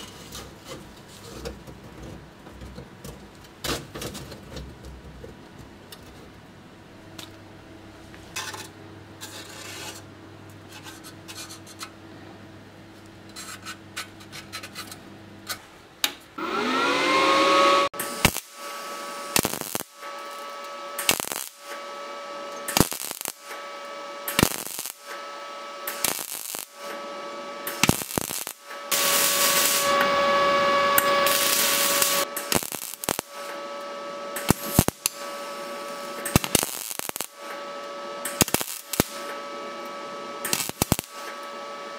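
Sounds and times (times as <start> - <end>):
cut-off wheel whining: 16.4 - 19.5, 25.2 - 41.9
wheel cutting rusted steel: 16.4 - 41.8.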